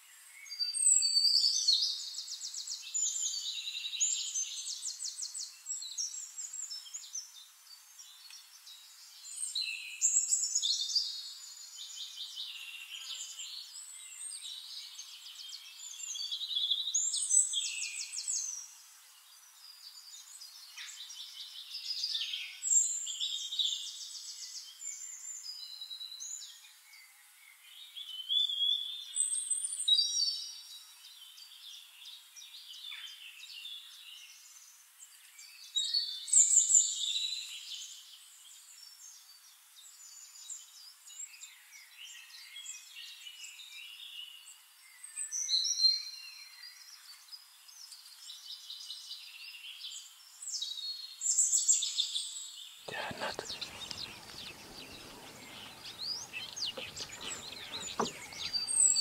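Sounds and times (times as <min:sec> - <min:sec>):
songbird trills and warbles: 0:00.0 - 0:59.0
faint bird twittering: 0:52.9 - 0:59.0.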